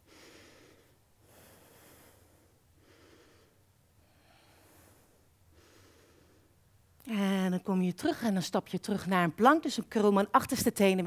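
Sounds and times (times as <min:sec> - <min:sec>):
slow soft breathing: 0:00.0 - 0:06.8.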